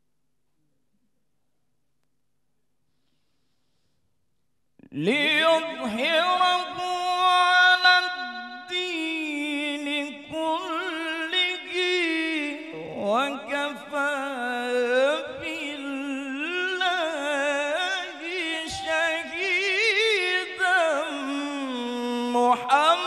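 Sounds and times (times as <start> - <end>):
man reciting melodically: 4.8 - 23.0.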